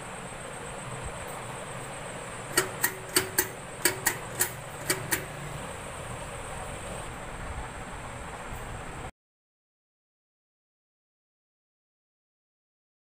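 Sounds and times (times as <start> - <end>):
sharp clicks: 2.5 - 5.4.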